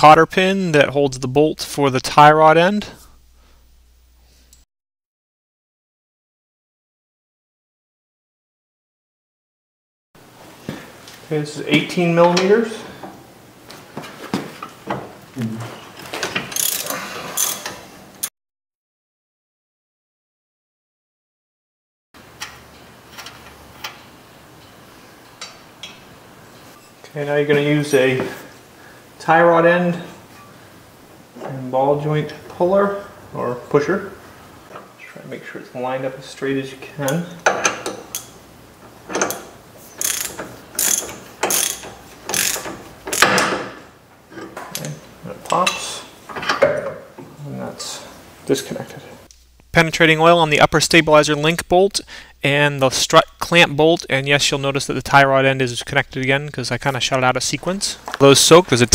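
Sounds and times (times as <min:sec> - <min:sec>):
hand ratchet clicking: 0:16.5 - 0:17.7, 0:40.0 - 0:43.4.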